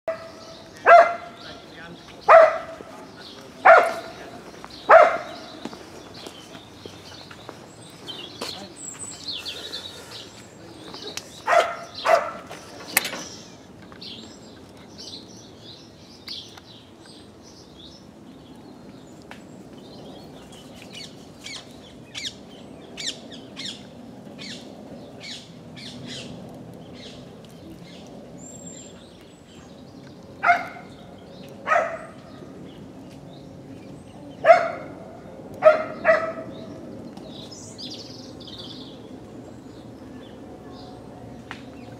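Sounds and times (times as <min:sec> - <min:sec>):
dog barking: 0:00.1 - 0:01.4, 0:02.3 - 0:02.8, 0:03.6 - 0:04.2, 0:04.9 - 0:05.4, 0:11.5 - 0:12.5, 0:30.4 - 0:30.9, 0:31.7 - 0:32.2, 0:34.4 - 0:35.0, 0:35.6 - 0:36.5
small birds chirping: 0:00.1 - 0:41.9.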